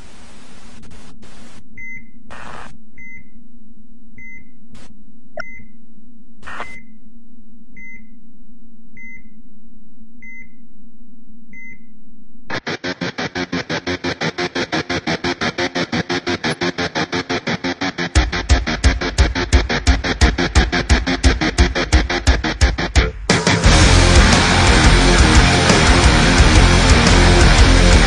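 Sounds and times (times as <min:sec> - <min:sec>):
steady low hum: 0:00.0 - 0:12.6
fast pulsing electronic music: 0:12.8 - 0:28.0.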